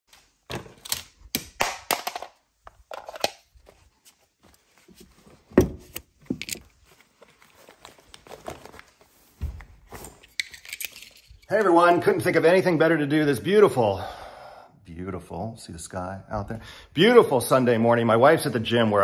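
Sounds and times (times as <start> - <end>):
cloth rustling: 3.5 - 10.4
small items clicking and knocking: 10.2 - 11.6.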